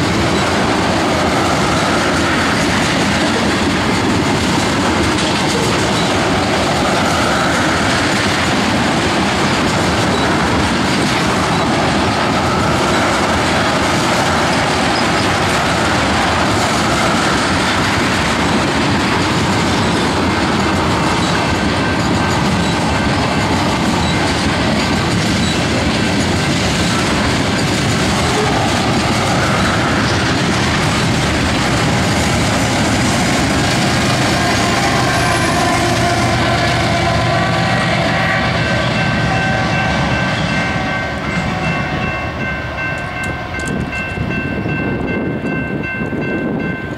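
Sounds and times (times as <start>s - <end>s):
steady high-pitched tones: 0.0s - 4.0s, 4.6s - 9.0s
diesel locomotive passing: 0.0s - 46.9s
freight train rumble and wheel clatter: 0.0s - 46.9s.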